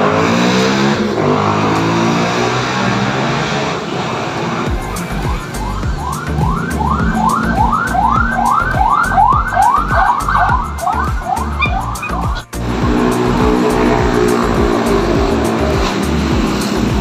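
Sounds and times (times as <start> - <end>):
siren-like synth sweep: 4.7 - 16.2
electronic music with kick drum: 4.7 - 17.0.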